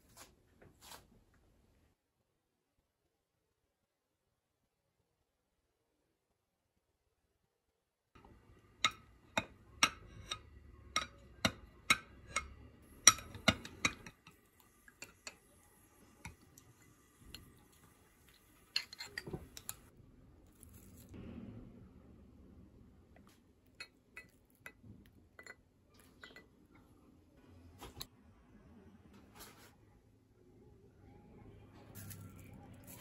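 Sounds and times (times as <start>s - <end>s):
kitchen utensils tapping and clinking: 8.7s - 19.9s, 23.8s - 26.6s.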